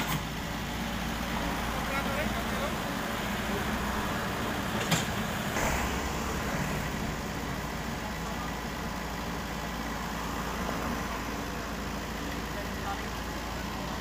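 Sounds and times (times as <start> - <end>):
heavy diesel engines running: 0.0 - 14.0
sharp knock: 4.8 - 6.8.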